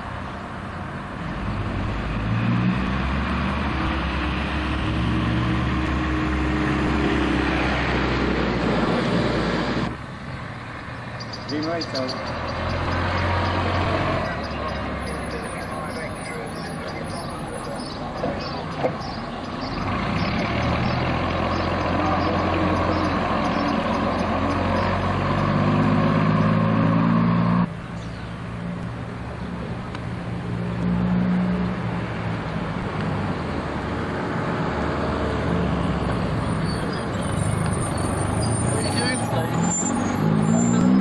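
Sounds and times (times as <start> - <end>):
bus engine accelerating: 0.0 - 41.0
bus engine running steadily: 11.7 - 39.4.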